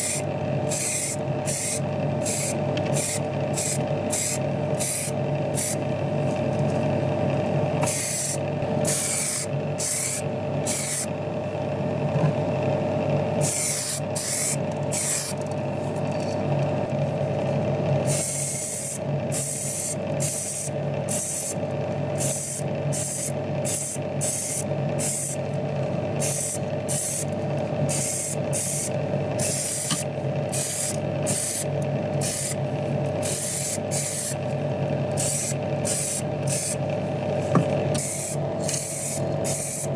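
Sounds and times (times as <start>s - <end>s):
paint spray hissing: 0.0s - 5.8s, 7.9s - 11.1s, 13.4s - 15.3s, 18.1s - 21.6s, 22.2s - 25.4s, 26.2s - 27.2s, 27.9s - 32.6s, 33.2s - 34.4s, 35.2s - 36.8s, 38.0s - 39.9s
steady motor hum: 0.0s - 39.9s.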